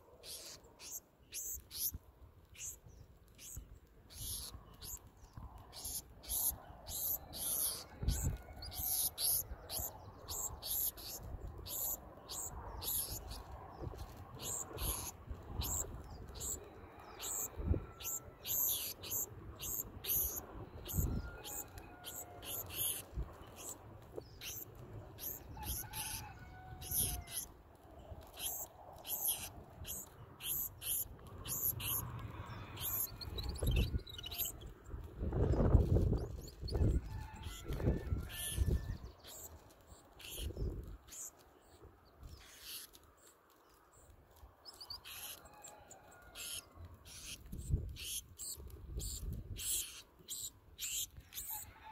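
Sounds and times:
sparrows chipping: 0.0 - 51.7
fledgling bird begging chirps: 17.2 - 23.8.

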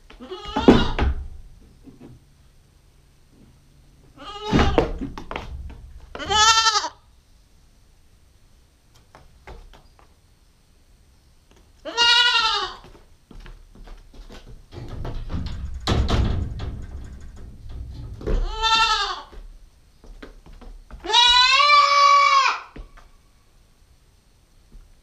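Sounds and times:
goat kid bleating: 0.2 - 1.0, 4.2 - 4.9, 6.2 - 7.0, 11.8 - 13.0, 18.4 - 19.4, 21.0 - 22.8
knocking and rustling: 4.5 - 6.4, 12.9 - 21.1.

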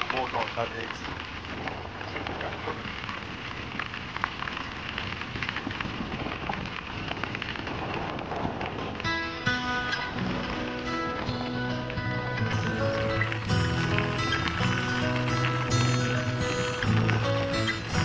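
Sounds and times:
bike tyres rolling over gravel: 0.0 - 18.0
music: 9.0 - 18.0.

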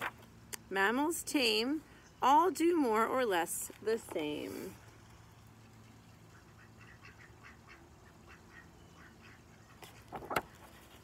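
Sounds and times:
faint repeated animal calls: 5.5 - 10.9
book page turning: 9.8 - 11.0.

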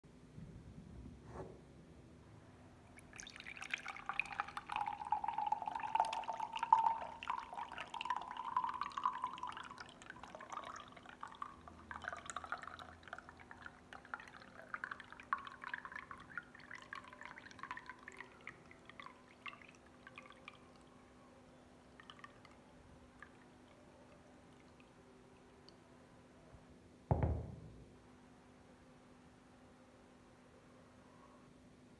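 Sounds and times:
juice pouring into a glass: 2.9 - 21.1, 21.9 - 25.8
drips and trickles: 2.9 - 25.8.

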